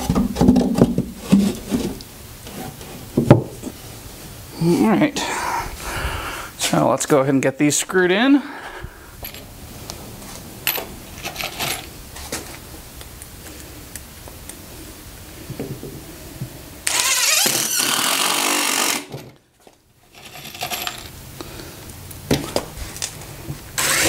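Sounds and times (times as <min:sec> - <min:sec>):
knocks and clicks of handling wood: 0:00.0 - 0:02.6, 0:03.2 - 0:03.8
cordless driver driving a screw: 0:16.9 - 0:19.1, 0:23.8 - 0:24.0.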